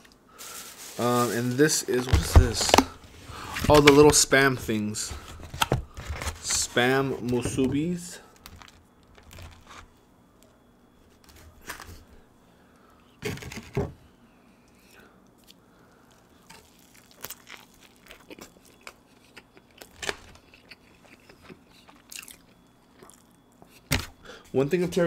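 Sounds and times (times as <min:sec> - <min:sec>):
chewing with small clicks: 0:17.2 - 0:23.9.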